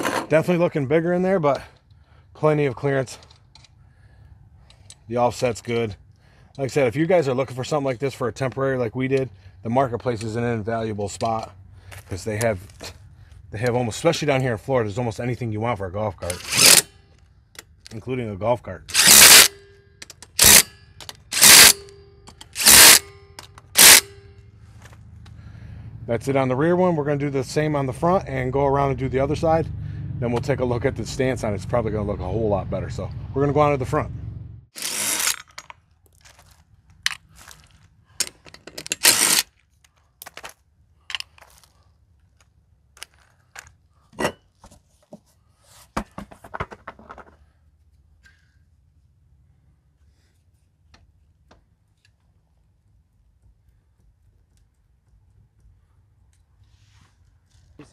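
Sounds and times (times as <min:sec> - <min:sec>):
impact driver bursts: 0:16.3 - 0:16.9, 0:18.9 - 0:19.6, 0:20.3 - 0:23.1, 0:23.7 - 0:24.2, 0:34.8 - 0:35.4, 0:39.0 - 0:39.4
scraping on gravel: 0:34.8 - 0:38.4.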